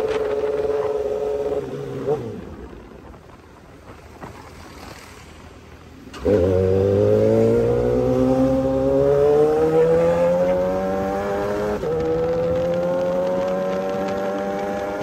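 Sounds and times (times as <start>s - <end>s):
motorcycle engine accelerating: 6.1s - 15.0s.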